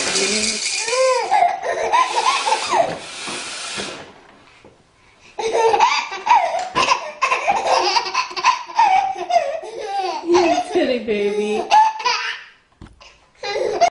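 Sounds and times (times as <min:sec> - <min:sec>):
baby belly laughing: 0:00.8 - 0:02.9, 0:05.4 - 0:12.5, 0:13.4 - 0:13.9
woman blowing her nose: 0:02.0 - 0:04.1.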